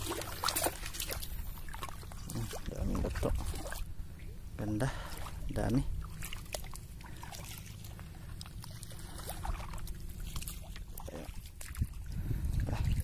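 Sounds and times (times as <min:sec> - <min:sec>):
footsteps squelching through water and mud: 0:00.0 - 0:03.9, 0:04.8 - 0:13.0
small splashes: 0:00.0 - 0:03.9, 0:04.8 - 0:13.0
low steady rumble: 0:00.0 - 0:13.0.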